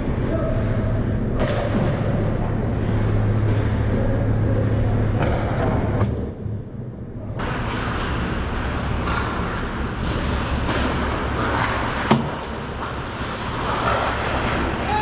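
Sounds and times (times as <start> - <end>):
steady low hum: 0.0 - 15.0
skates on ice: 7.4 - 15.0.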